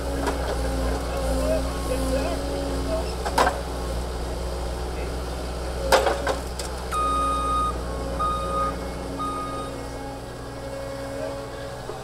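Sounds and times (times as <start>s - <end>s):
diesel engine droning: 0.0s - 12.0s
reversing alarm beeps: 6.9s - 9.8s.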